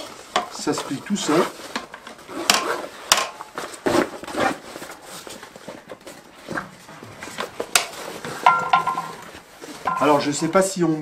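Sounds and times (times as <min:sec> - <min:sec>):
sharp clicks of folding parts: 0:01.7 - 0:04.0.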